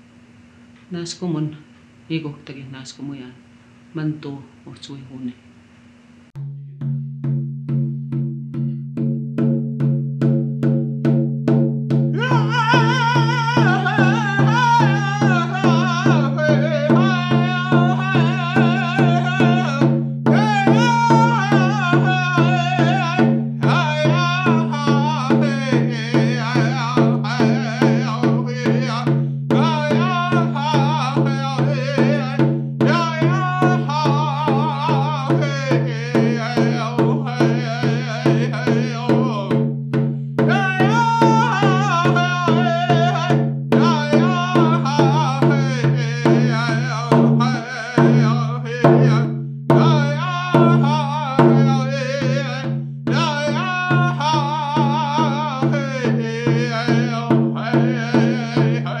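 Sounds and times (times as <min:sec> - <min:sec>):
frame drum beat: 0:06.4 - 0:59.0
man singing: 0:12.0 - 0:39.8, 0:40.4 - 0:59.0.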